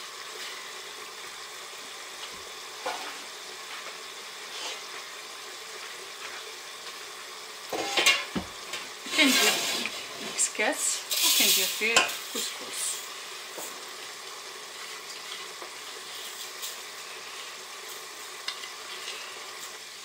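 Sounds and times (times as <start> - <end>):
metal pot clanking and scraping: 7.7 - 10.4
faint hiss: 9.0 - 13.3.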